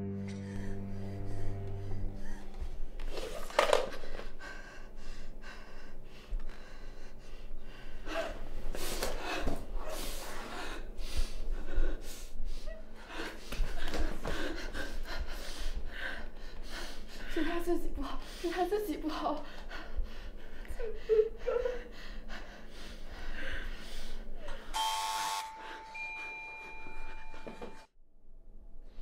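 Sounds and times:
girl breathing hard and gasping: 0.3 - 18.6
woman breathing hard and gasping: 0.3 - 18.6, 19.4 - 24.8.

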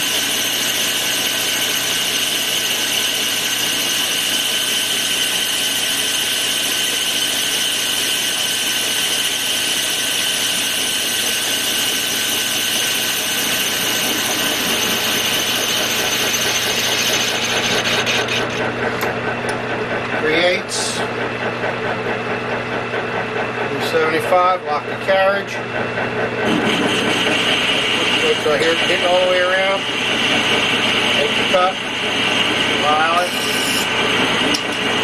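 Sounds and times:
metal lathe whining: 0.0 - 21.6, 22.3 - 35.0
hand file scraping metal: 10.2 - 18.6, 32.2 - 34.7.

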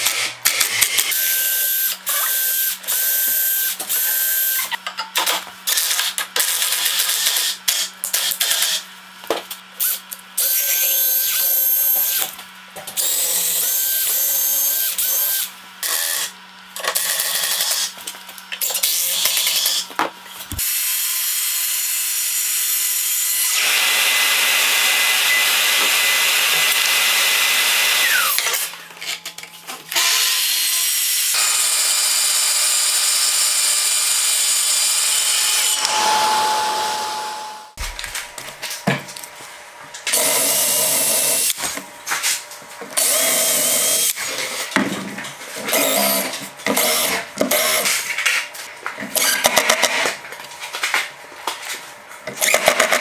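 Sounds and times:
circular saw cutting: 0.7 - 4.8, 13.0 - 16.3, 20.5 - 28.7, 30.0 - 37.8
cordless drill driving screws: 43.0 - 44.2.

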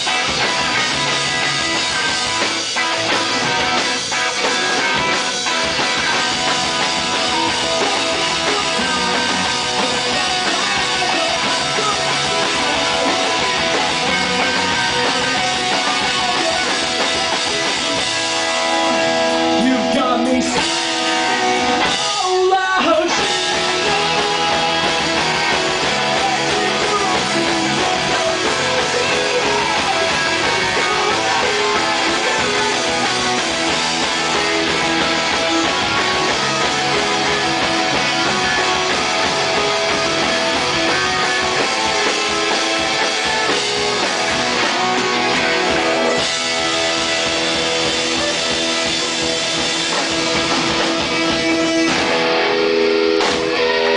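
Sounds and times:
bass guitar: 0.0 - 53.9
electric guitar: 0.0 - 53.9
man singing: 7.2 - 18.1, 18.8 - 34.5.

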